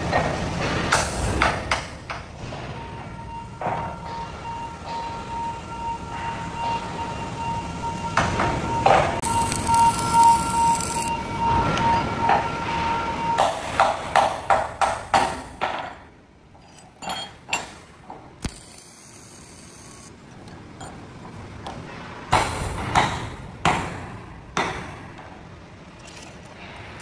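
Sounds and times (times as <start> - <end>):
hammer striking steel: 13.4 - 18.6, 22.3 - 25.3.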